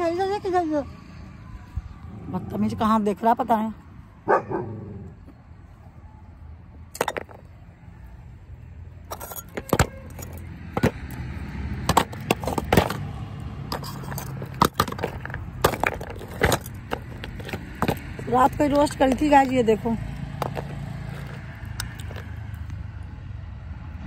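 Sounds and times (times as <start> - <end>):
clay pieces clacking in a tub: 13.7 - 19.5, 20.4 - 22.3.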